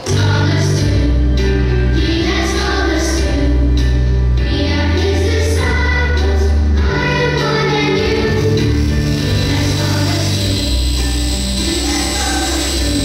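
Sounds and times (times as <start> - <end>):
choir singing: 0.0 - 3.7, 4.4 - 13.0
long held bass notes: 6.0 - 13.0.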